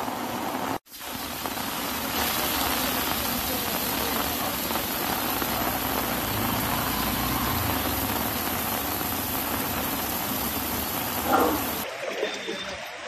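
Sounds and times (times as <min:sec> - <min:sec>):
heavy rain pouring: 0:00.0 - 0:13.0
vehicle engines running: 0:05.3 - 0:11.8.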